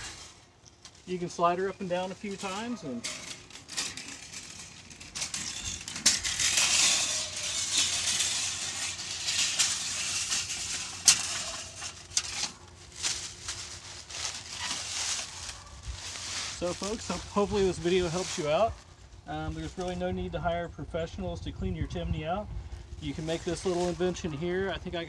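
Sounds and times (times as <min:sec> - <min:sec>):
chimney brush scraping inside flue: 0:00.0 - 0:19.0
steel cable rasping and clattering: 0:02.1 - 0:17.2.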